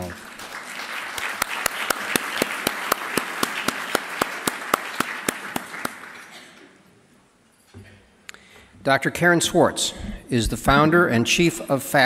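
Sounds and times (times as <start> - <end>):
audience applauding: 0.0 - 6.6
person clapping close by: 1.1 - 6.2.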